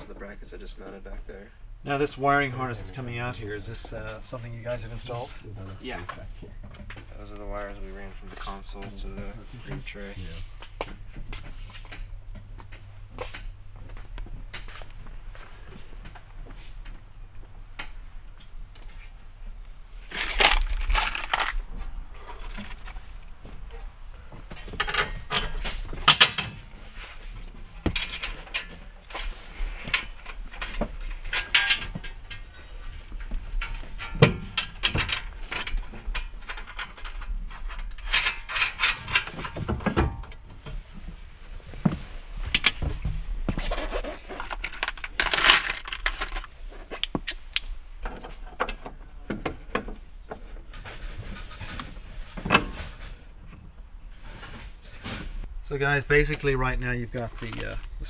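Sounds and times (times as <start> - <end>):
metal hardware and tools clinking: 29.9 - 32.5.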